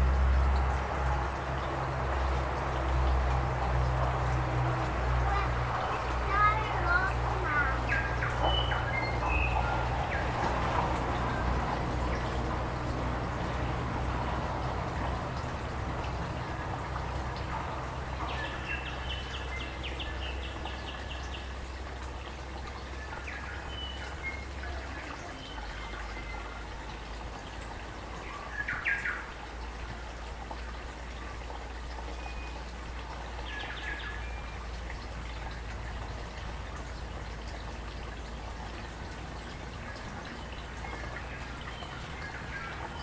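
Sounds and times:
babbling stream: 0:00.0 - 0:43.0
birds chirping: 0:05.3 - 0:12.5, 0:17.0 - 0:22.2.

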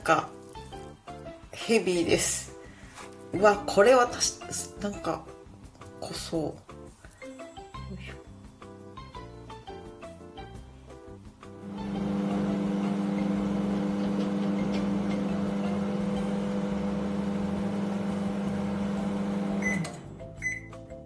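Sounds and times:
microwave oven humming: 0:11.6 - 0:20.1.

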